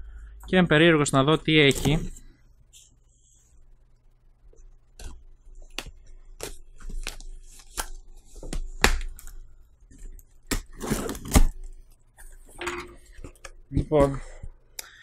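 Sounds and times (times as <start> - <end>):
cardboard package tearing: 10.5 - 11.6.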